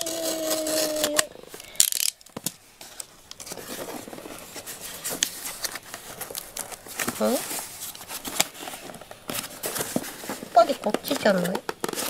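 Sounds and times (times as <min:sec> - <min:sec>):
cardboard ripping: 0:00.0 - 0:01.3
cardboard rustling and clicking: 0:00.0 - 0:12.0.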